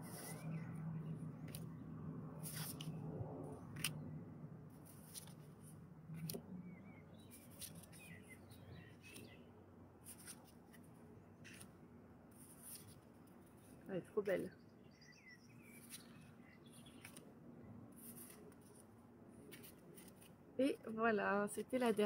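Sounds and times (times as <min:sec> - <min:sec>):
cards shuffling in hands: 0:02.4 - 0:02.9, 0:10.1 - 0:10.8
small birds chirping: 0:06.1 - 0:10.3, 0:13.5 - 0:18.8.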